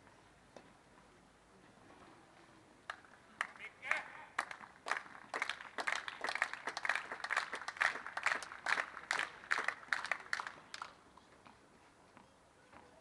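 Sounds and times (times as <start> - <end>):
light applause: 2.9 - 11.0.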